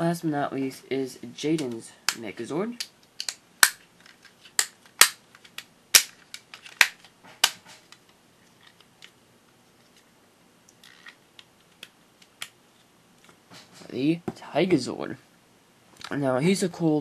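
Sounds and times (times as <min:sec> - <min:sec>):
plastic toy parts clicking: 0:02.8 - 0:09.1.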